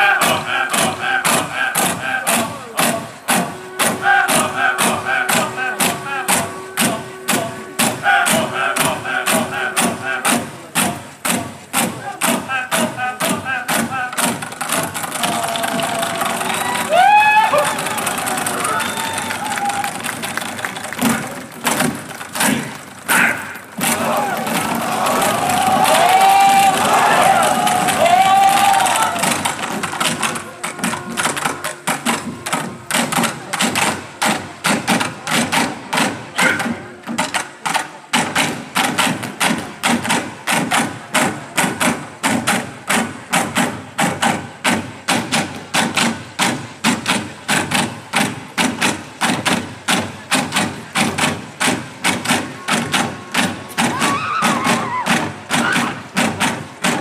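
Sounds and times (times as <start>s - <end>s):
group chanting: 0.0s - 16.8s, 23.1s - 30.2s
steady beat of sharp strikes: 0.0s - 18.4s, 21.0s - 57.0s.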